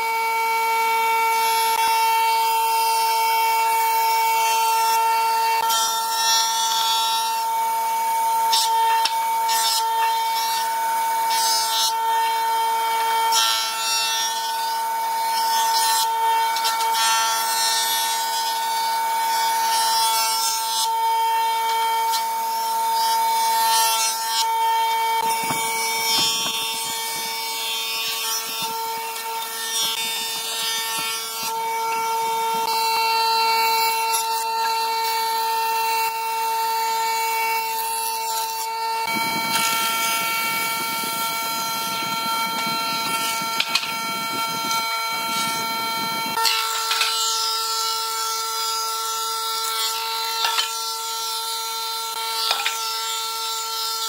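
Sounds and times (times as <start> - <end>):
jointer whining: 0.0 - 53.5
knives cutting wood hissing: 22.9 - 32.8.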